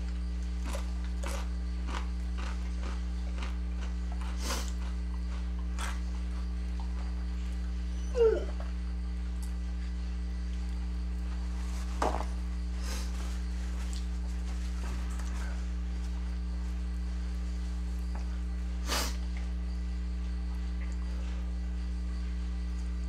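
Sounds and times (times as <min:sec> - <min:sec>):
dog whining: 0:07.8 - 0:08.7.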